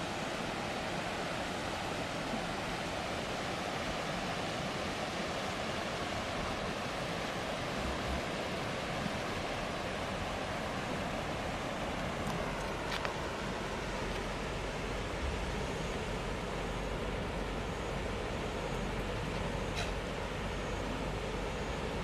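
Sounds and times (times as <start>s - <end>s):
river rushing: 0.0s - 22.0s.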